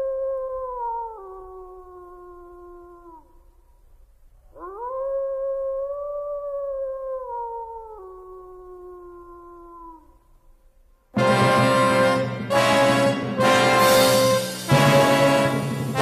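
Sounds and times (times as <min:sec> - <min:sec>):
wolf howling: 0:00.0 - 0:03.4, 0:04.5 - 0:10.2.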